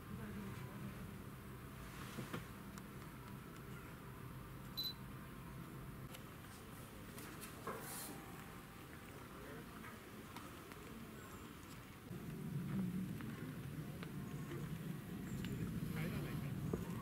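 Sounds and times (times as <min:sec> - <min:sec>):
low steady hum: 0:07.7 - 0:17.0.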